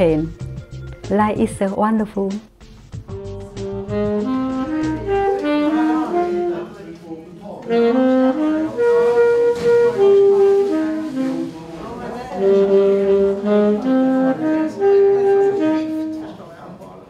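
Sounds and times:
melody of held notes: 0:03.1 - 0:07.0, 0:07.7 - 0:16.5.

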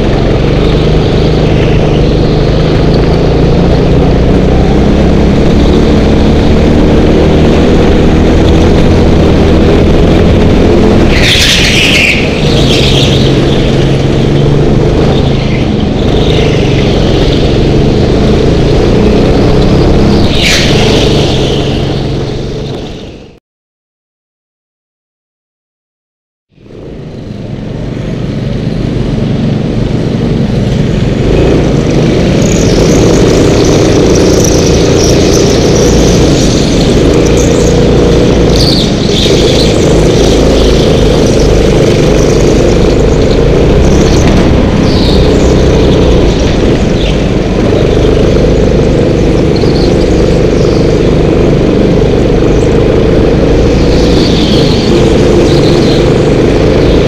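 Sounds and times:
go-kart engines running: 0:00.0 - 0:23.4, 0:26.6 - 0:57.0
tyre squeals: 0:11.1 - 0:13.7.

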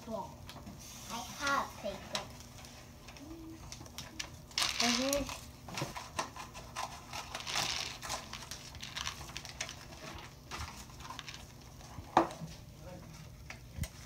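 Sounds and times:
plastic pegs clicking and rattling: 0:04.6 - 0:05.4.

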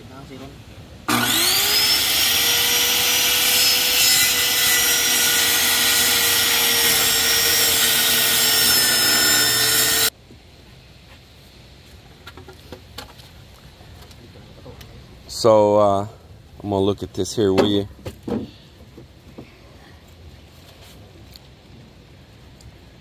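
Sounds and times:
circular saw whine: 0:01.1 - 0:10.1
saw cutting wood: 0:01.1 - 0:10.1.

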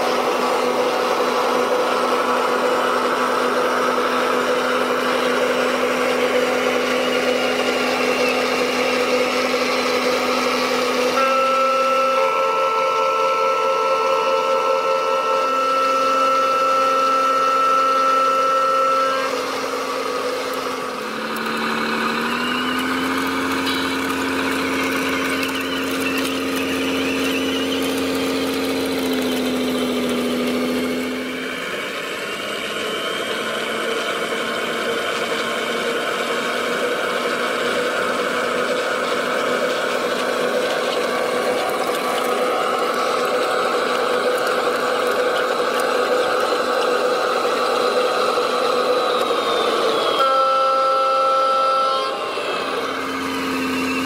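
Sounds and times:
model truck motor whine: 0:00.0 - 0:54.0.

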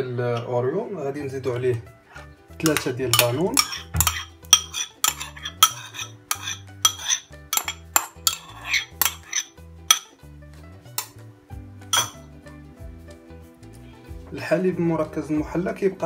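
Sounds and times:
background music with bass line: 0:00.0 - 0:16.0
metal spoon scraping plastic pot: 0:01.4 - 0:10.1, 0:12.0 - 0:12.2.

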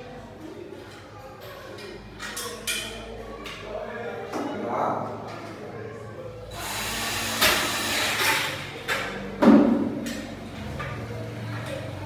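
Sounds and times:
cordless drill boring into metal: 0:06.6 - 0:08.5.

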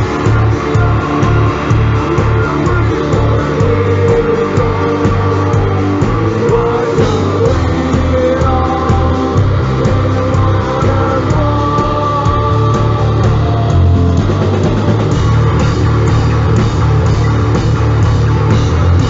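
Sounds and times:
lead vocals singing: 0:00.0 - 0:15.1
heavy metal band playing live: 0:00.0 - 0:19.0.

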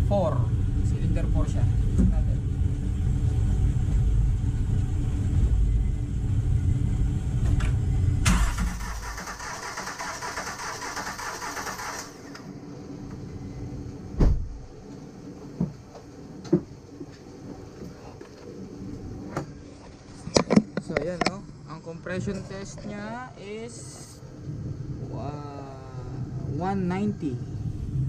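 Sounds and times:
engine cranking on starter: 0:08.2 - 0:12.5.

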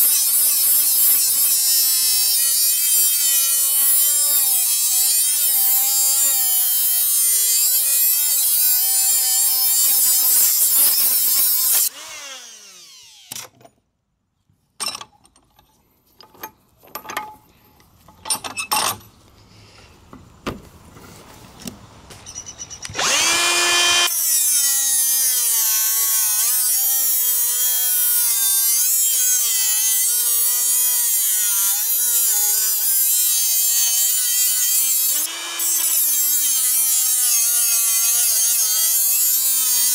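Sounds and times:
die grinder cutting metal: 0:00.0 - 0:13.5, 0:22.9 - 0:39.9.

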